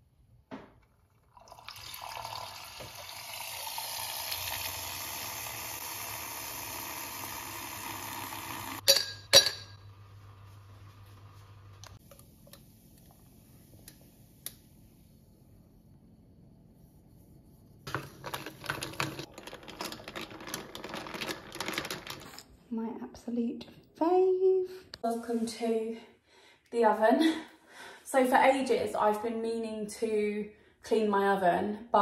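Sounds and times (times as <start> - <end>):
milk frother whirring: 1.7 - 8.8
ice cubes clinking in glass: 17.9 - 22.4.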